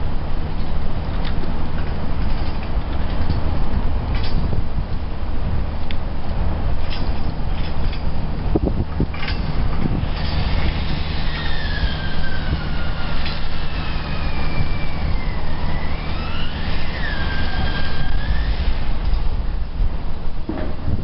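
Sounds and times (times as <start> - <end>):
high whine sliding in pitch: 7.4 - 21.0.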